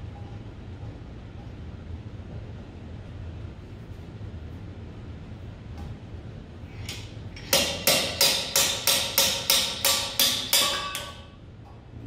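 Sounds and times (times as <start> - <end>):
slide hammer blows: 6.8 - 11.4.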